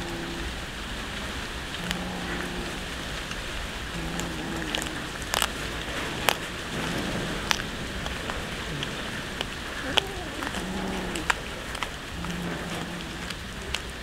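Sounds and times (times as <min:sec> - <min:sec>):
cats chewing wetly: 0:00.0 - 0:14.0
fish bone crunching: 0:04.0 - 0:14.0.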